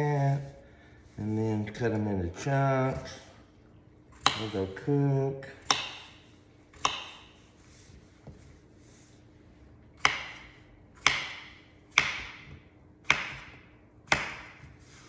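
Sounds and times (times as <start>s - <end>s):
knife chopping on wooden board: 4.2s - 4.7s, 5.6s - 7.4s, 10.0s - 14.8s.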